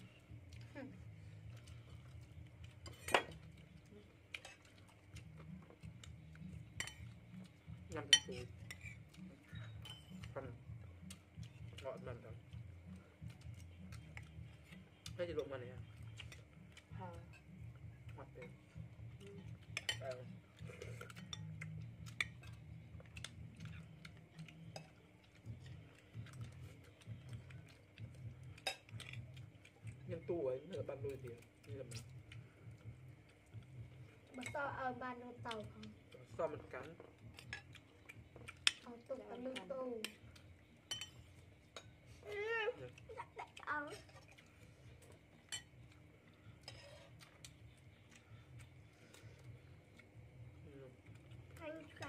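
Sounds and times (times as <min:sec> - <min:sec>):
low steady hum: 0:00.0 - 0:52.0
spoons clinking on ceramic plates: 0:02.8 - 0:03.6, 0:06.8 - 0:07.2, 0:07.9 - 0:10.4, 0:19.7 - 0:23.8, 0:28.6 - 0:29.3, 0:40.8 - 0:42.0, 0:45.4 - 0:45.9, 0:46.6 - 0:47.5.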